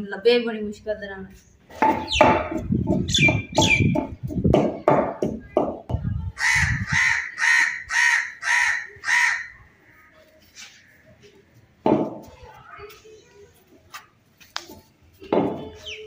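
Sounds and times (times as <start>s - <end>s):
crow cawing: 6.4s - 9.6s.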